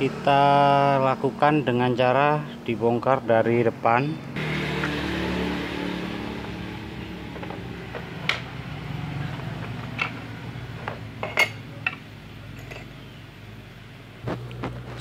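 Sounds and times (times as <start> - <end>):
metal parts clinking: 9.3 - 13.0.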